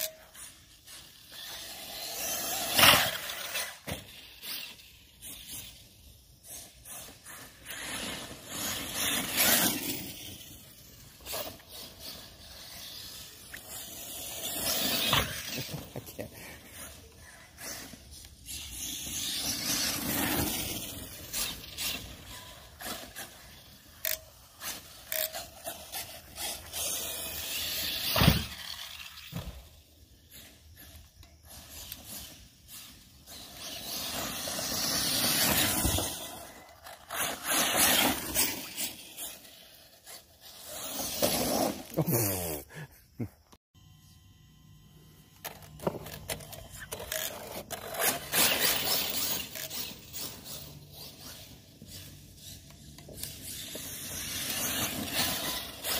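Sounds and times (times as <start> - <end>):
tyres and chassis scraping: 0.0 - 42.4
electric motor whine: 43.8 - 55.9.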